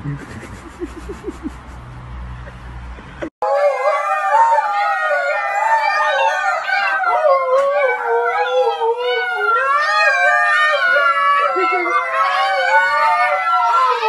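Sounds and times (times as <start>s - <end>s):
dog and puppies howling: 3.4s - 14.0s.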